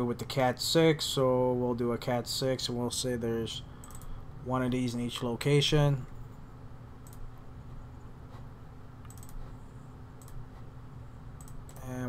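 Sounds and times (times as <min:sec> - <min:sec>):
faint room hum: 0:00.0 - 0:12.0
computer mouse clicks: 0:03.8 - 0:04.2, 0:07.0 - 0:07.3, 0:09.0 - 0:09.5, 0:10.2 - 0:10.6, 0:11.4 - 0:12.0.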